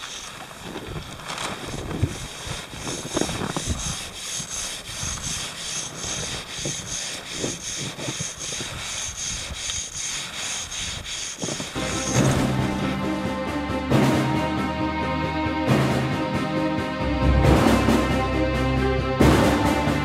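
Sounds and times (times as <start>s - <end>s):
hand saw rasping through snow: 0.0s - 12.8s.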